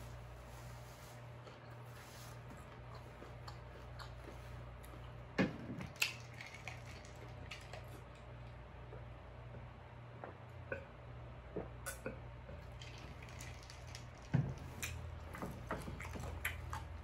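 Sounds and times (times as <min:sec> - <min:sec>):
steady low hum: 0:00.0 - 0:17.0
chewing mouth sounds: 0:01.4 - 0:08.3, 0:12.6 - 0:17.0
person drinking: 0:11.9 - 0:17.0.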